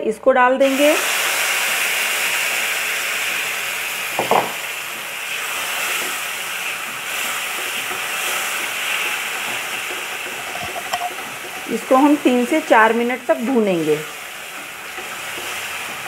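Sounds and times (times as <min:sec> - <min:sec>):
paste sizzling in hot oil: 0:00.6 - 0:16.0
spatula stirring: 0:05.4 - 0:16.0.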